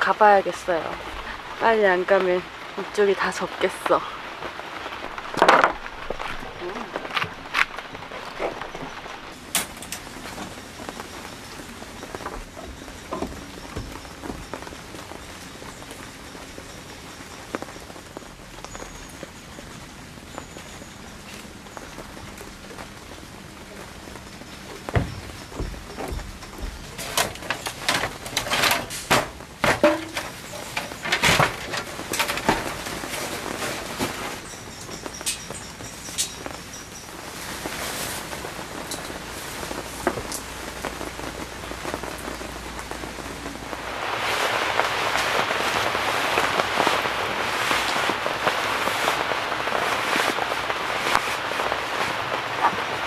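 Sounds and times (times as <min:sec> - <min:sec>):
rain pattering: 0:00.0 - 0:53.0
camping gear rustling and knocking: 0:05.1 - 0:15.3, 0:24.2 - 0:35.6.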